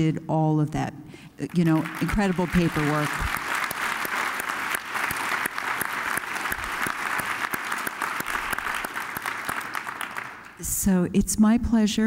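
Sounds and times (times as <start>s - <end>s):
audience applauding: 1.6s - 10.6s.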